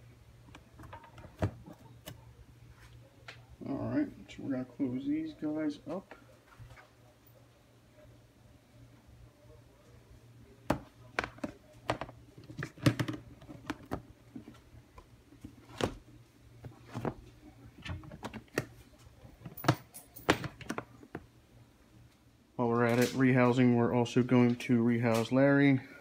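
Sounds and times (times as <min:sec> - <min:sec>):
plastic lids clicking and knocking: 0:10.7 - 0:14.0.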